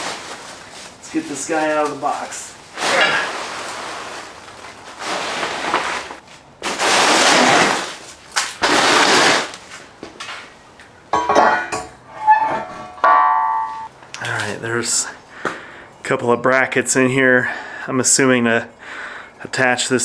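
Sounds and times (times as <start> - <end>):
metal object clanking on concrete: 11.1 - 13.9
metallic ring: 11.1 - 13.9.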